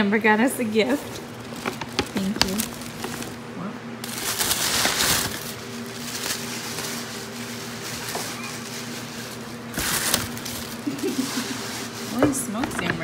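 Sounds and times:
steady low hum: 0:00.0 - 0:13.0
tissue paper rustling: 0:00.9 - 0:03.4, 0:04.0 - 0:12.6.

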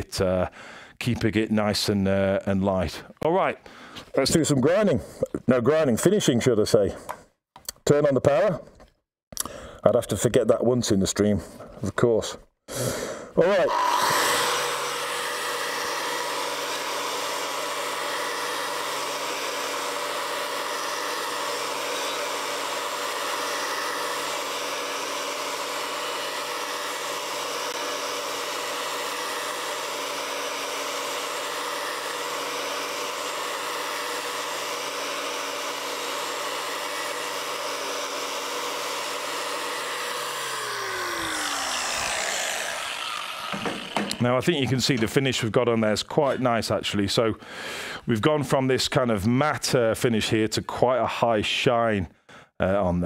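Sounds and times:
angle grinder motor whine: 0:13.4 - 0:45.2.

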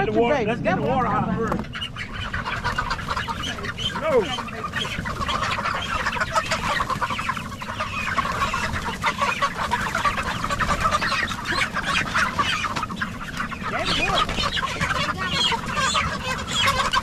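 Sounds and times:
chickens clucking: 0:00.0 - 0:17.0.

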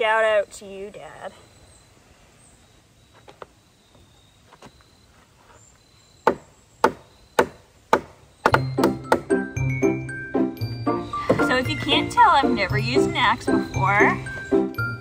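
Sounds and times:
hatchet chopping wood: 0:06.2 - 0:09.4
music: 0:08.5 - 0:15.0.

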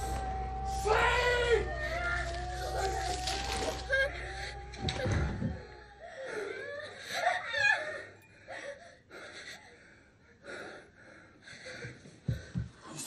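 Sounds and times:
person moaning and gasping: 0:02.2 - 0:08.0.

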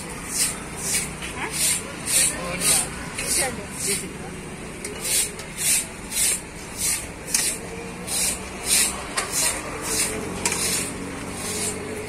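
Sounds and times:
outdoor background noise: 0:00.0 - 0:12.0
rhythmic scraping hiss: 0:05.0 - 0:11.9.

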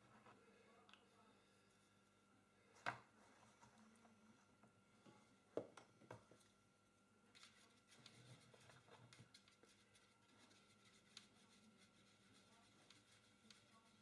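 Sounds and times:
paintbrush scratching in palette: 0:07.3 - 0:14.0.

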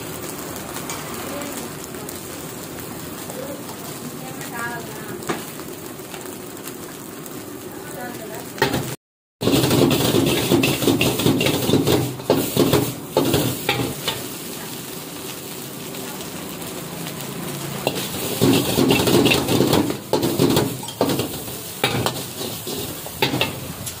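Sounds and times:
rice sizzling: 0:00.0 - 0:24.0
ladle scraping a wok: 0:09.4 - 0:14.4, 0:17.8 - 0:24.0
ladle clinking against wok: 0:17.9 - 0:24.0.

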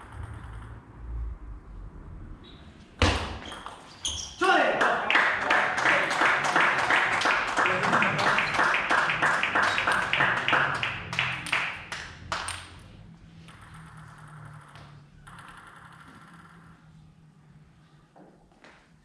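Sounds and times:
rhythmic crowd clapping: 0:04.4 - 0:12.8.

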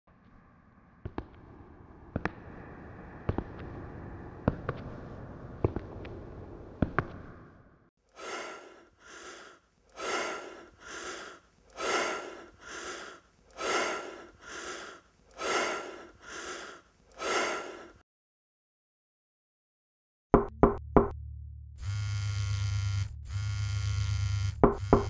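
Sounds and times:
person breathing hard: 0:08.1 - 0:18.0.

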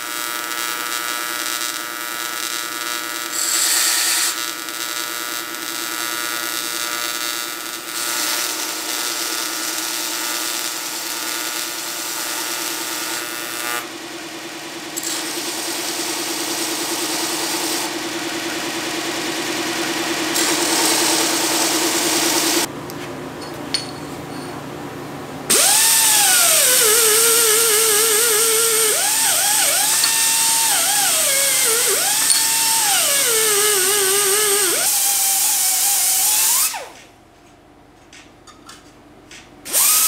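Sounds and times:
die grinder whining: 0:00.0 - 0:22.7, 0:25.5 - 0:37.0, 0:39.7 - 0:40.0
band saw humming: 0:10.5 - 0:22.7, 0:25.5 - 0:37.0.

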